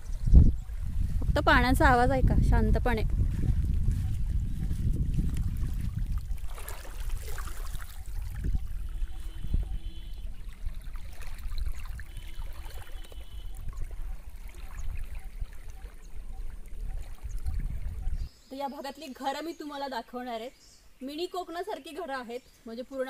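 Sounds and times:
wind rumble on microphone: 0.0s - 18.4s
small waves lapping on shore: 0.7s - 18.2s.

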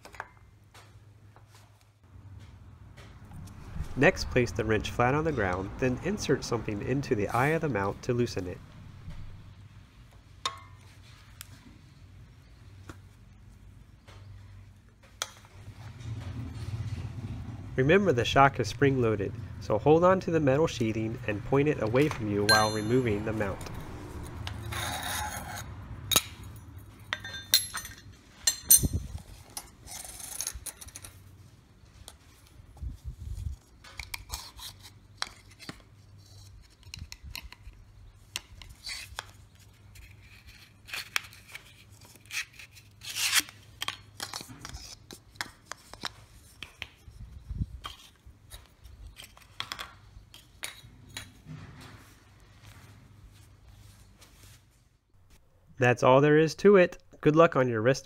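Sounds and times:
metal parts clinking and scraping: 22.5s - 31.3s.

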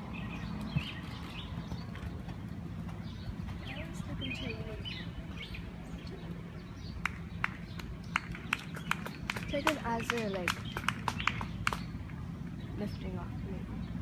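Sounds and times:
low outdoor hum: 0.0s - 14.0s
small birds chirping: 0.0s - 14.0s
sharp clicks: 7.0s - 11.9s.

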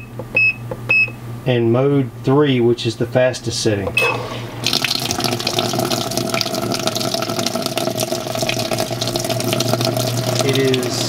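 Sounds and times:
washing machine beep: 0.0s - 1.2s, 4.0s - 4.4s
water pouring into tub: 4.2s - 11.0s.

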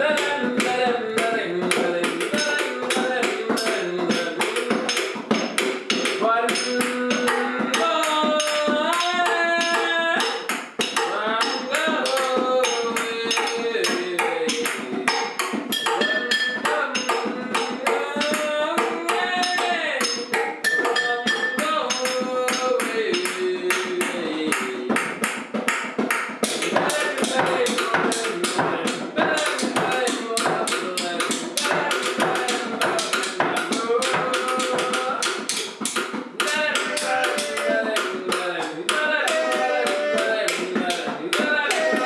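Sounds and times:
person singing: 0.0s - 25.3s, 26.5s - 42.0s
bongos playing fast: 0.0s - 42.0s
tapping on glass jar and chairs: 19.4s - 23.4s.

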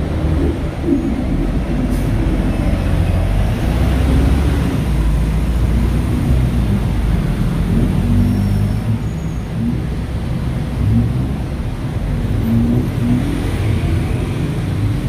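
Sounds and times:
road traffic rumble: 0.0s - 15.0s.

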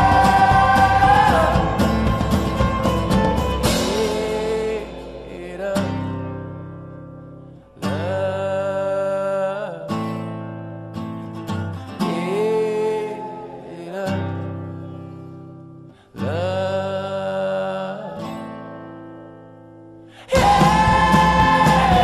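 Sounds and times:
person singing: 0.0s - 6.6s, 7.8s - 10.2s, 11.9s - 15.3s, 16.0s - 18.9s, 20.2s - 22.0s
acoustic guitar song: 0.0s - 22.0s.

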